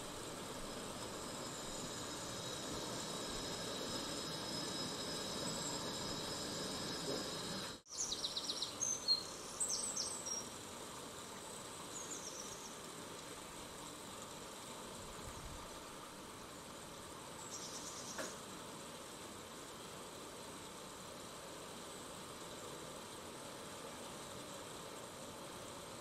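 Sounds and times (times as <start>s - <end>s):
insect chirring: 0.0s - 10.5s, 17.4s - 18.4s
low hiss: 0.0s - 26.0s.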